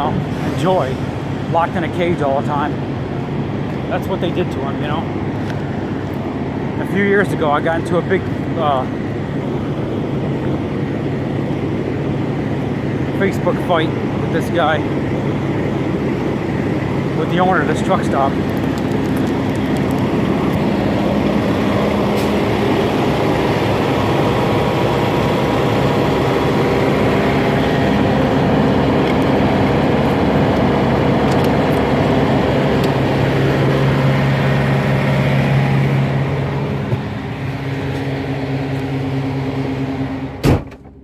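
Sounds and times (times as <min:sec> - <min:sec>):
vehicle engines running: 0:00.0 - 0:40.4
car door shutting: 0:40.4 - 0:41.0.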